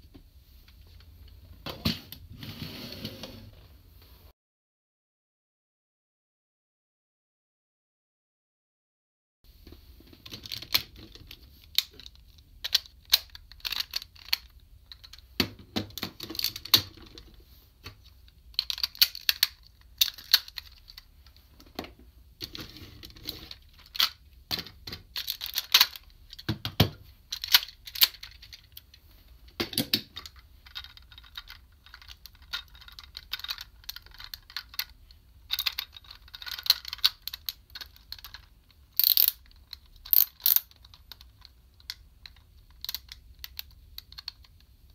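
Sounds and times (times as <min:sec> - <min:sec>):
plastic toy parts clicking: 0:10.2 - 0:15.2, 0:15.9 - 0:17.2, 0:18.3 - 0:21.4, 0:23.3 - 0:26.5, 0:27.3 - 0:29.0, 0:29.7 - 0:44.7.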